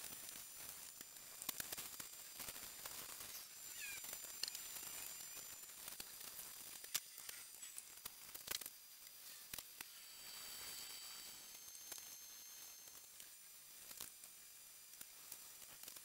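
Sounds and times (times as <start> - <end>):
small clicks and crinkles: 0.0 - 10.0, 10.6 - 16.0
steady hiss: 0.0 - 16.0.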